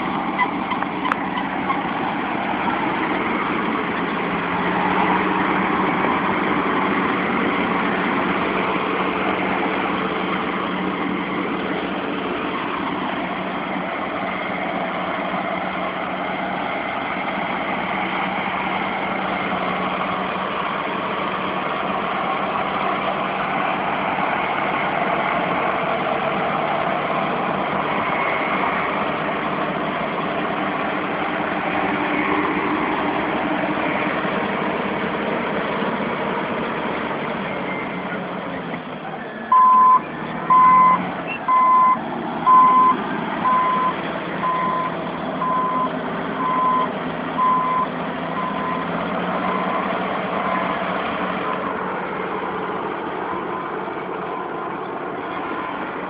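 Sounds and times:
bulldozer diesel engine running: 0.0 - 56.0
reversing alarm beeping: 39.5 - 48.9.

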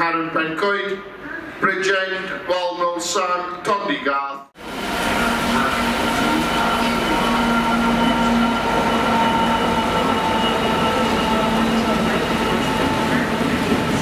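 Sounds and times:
freight train rumbling past: 4.6 - 14.0
thin whining tones: 5.1 - 13.3.

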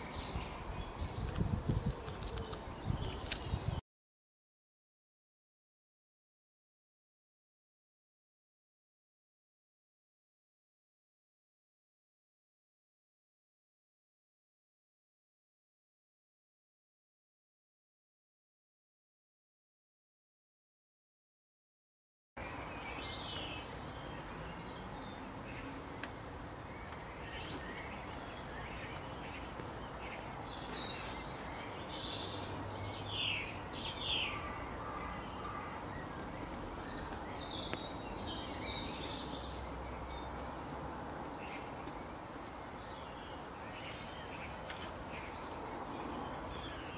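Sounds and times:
birds chirping: 0.0 - 3.8, 22.4 - 46.9
outdoor background hiss: 22.4 - 46.9.

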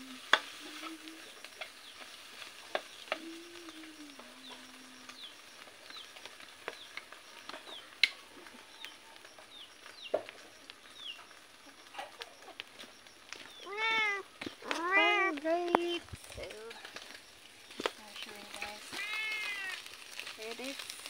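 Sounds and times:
animal cry: 13.6 - 15.3, 18.9 - 19.8.

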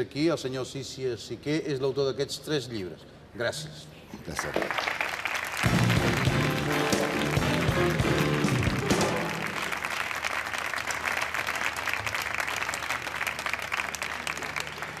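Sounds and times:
audience applauding: 4.3 - 15.0
music: 5.6 - 9.9.

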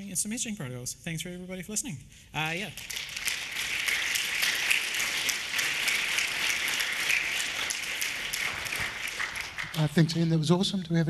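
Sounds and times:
audience applauding: 2.8 - 10.4.

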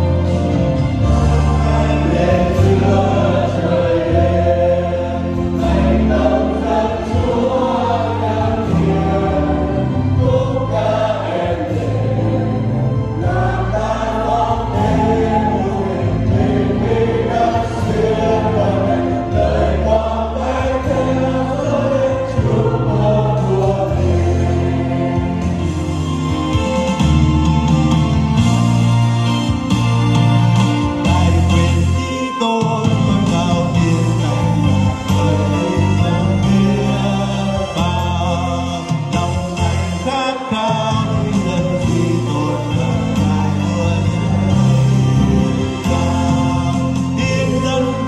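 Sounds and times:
held bass notes: 0.0 - 32.1, 32.8 - 40.1, 40.7 - 48.0
choir singing gospel music: 0.0 - 48.0
instrumental accompaniment: 0.0 - 48.0.

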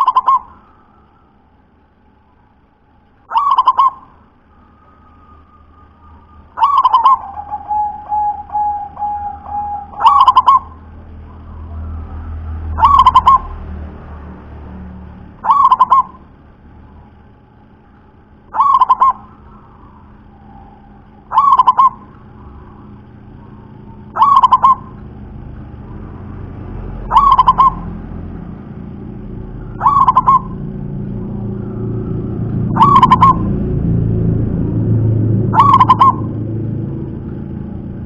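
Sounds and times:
dove cooing: 0.0 - 1.0, 3.3 - 13.6, 15.4 - 16.3, 18.5 - 26.1, 26.9 - 28.2, 29.6 - 33.7, 35.5 - 36.4.

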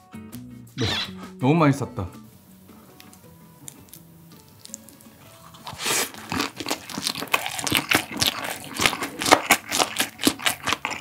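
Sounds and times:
crunchy wet chewing: 3.1 - 11.0
biting into food: 3.6 - 11.0.

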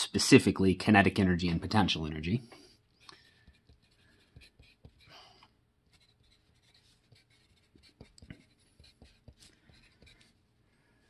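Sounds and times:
pencil writing on paper: 3.2 - 5.2, 5.9 - 10.4.

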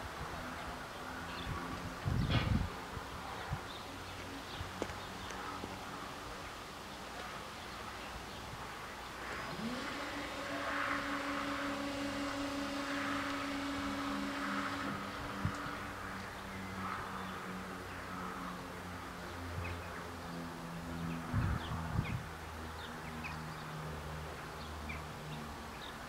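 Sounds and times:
low steady hum: 5.4 - 22.2
electric motor whining: 9.1 - 17.2.

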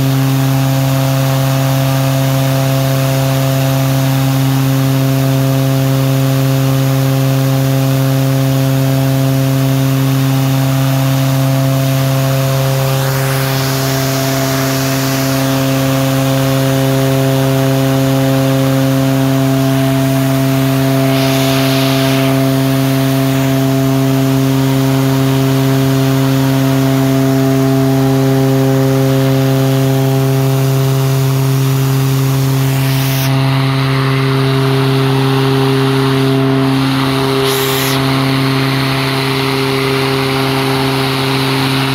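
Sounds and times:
turboprop engine droning: 0.0 - 41.9
rushing noise: 12.3 - 16.0, 20.0 - 24.0, 32.5 - 33.6.

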